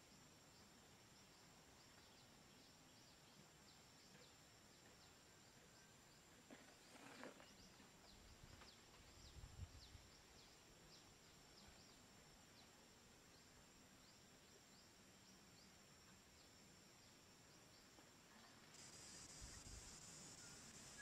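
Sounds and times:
high insect whine: 0:13.3 - 0:21.0.

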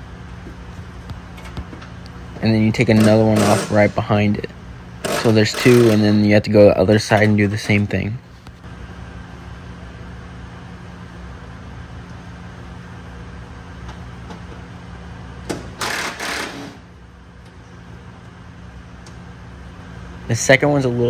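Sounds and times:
low mechanical hum: 0:00.0 - 0:21.0
impact driver running: 0:02.8 - 0:04.0, 0:05.0 - 0:06.2, 0:15.5 - 0:16.9.

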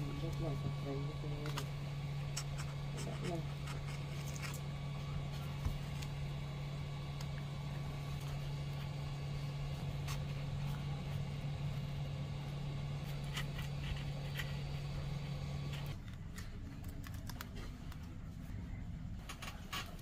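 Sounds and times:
steady low hum: 0:00.0 - 0:20.0
plastic card clicking and scraping: 0:15.7 - 0:18.2.

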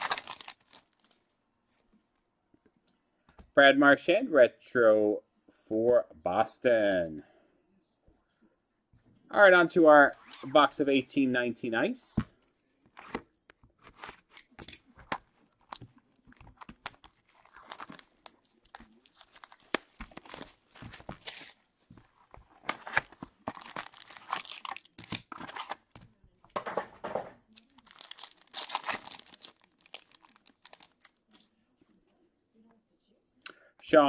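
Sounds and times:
card pack tearing open: 0:00.0 - 0:01.1, 0:13.8 - 0:21.6, 0:22.6 - 0:25.9, 0:27.6 - 0:31.2
plastic wrapping crinkling: 0:00.0 - 0:01.2, 0:15.1 - 0:26.0, 0:27.5 - 0:31.3.

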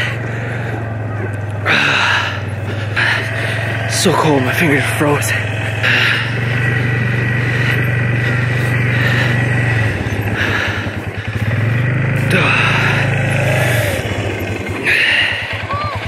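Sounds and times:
atv engine running: 0:00.0 - 0:16.0.

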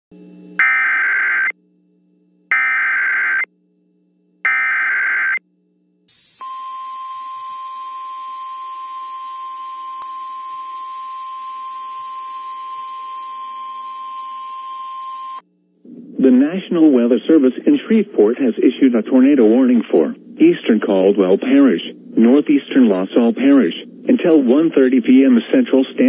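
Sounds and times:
digital data tone bursts: 0:00.6 - 0:01.5
steady warning alarm tone: 0:00.6 - 0:01.6, 0:02.5 - 0:03.5, 0:04.4 - 0:05.4, 0:06.1 - 0:15.4.

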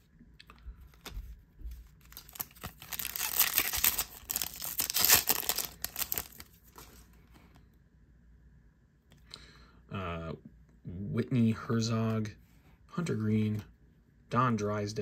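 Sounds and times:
card pack wrapper tearing and crinkling: 0:02.0 - 0:07.0.

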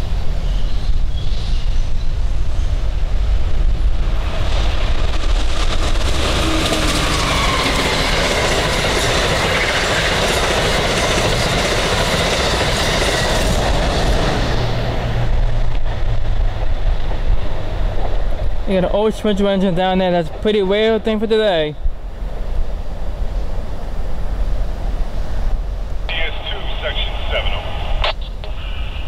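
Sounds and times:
rush of air: 0:02.2 - 0:08.0
train wheels clattering on rails: 0:04.3 - 0:14.8.

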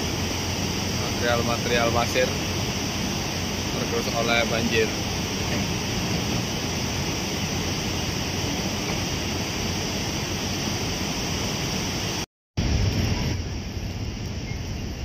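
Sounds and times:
mud flood rushing: 0:00.0 - 0:13.4
heavy low rumble: 0:00.0 - 0:15.0.

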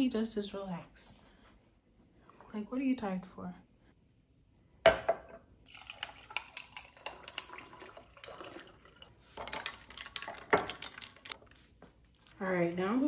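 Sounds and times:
juice pouring: 0:05.6 - 0:10.7
ice cubes clinking into glass: 0:05.7 - 0:11.4.

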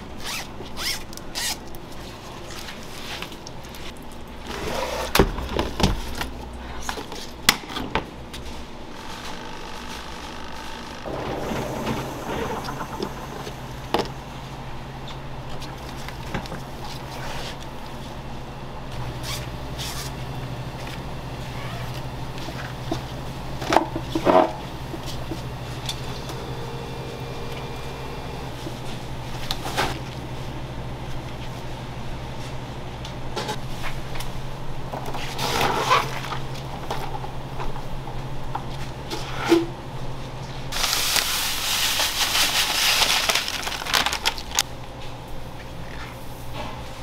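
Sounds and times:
steady low hum: 0:08.1 - 0:35.3.

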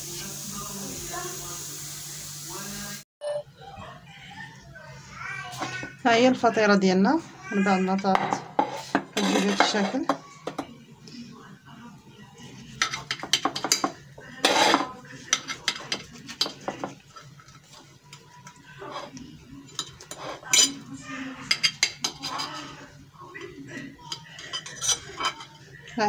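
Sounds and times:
plate and knife clattering: 0:08.2 - 0:10.6.

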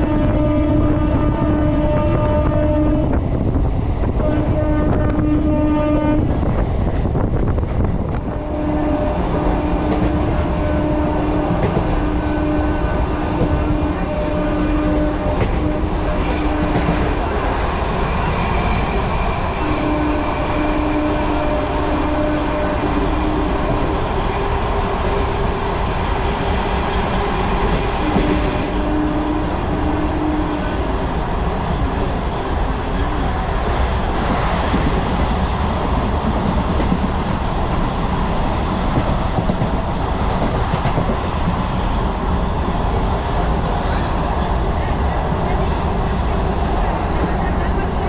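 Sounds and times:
train wheels rumbling on rail: 0:00.0 - 0:48.0.

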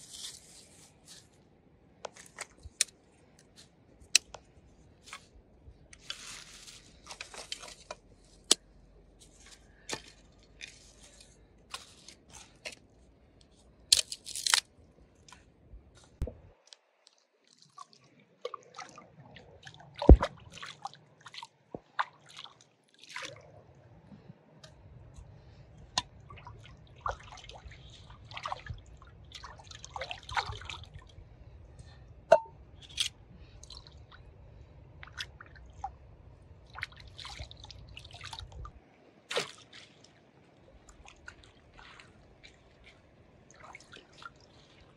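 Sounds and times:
dry leaves crunching: 0:00.0 - 0:01.3, 0:06.0 - 0:07.9
water splashing and sloshing: 0:00.0 - 0:44.9.

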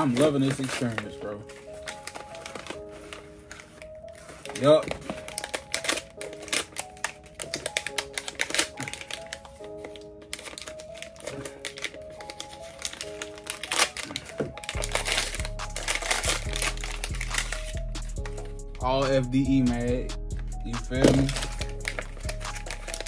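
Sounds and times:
tissue paper crinkling: 0:00.0 - 0:18.6, 0:21.0 - 0:23.0
background music with bass beat: 0:14.8 - 0:23.0.

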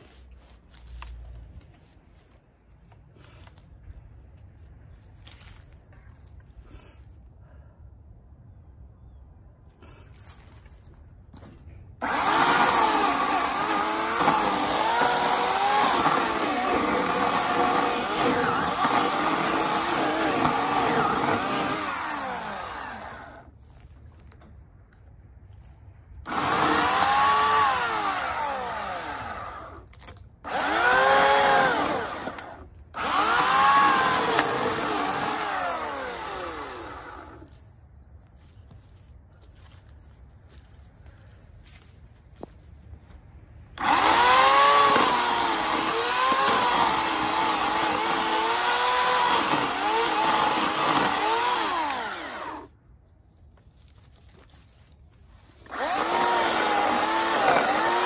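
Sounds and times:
electric chainsaw cutting log: 0:12.0 - 0:23.5, 0:26.2 - 0:37.5, 0:43.8 - 0:52.8, 0:55.6 - 0:58.0.

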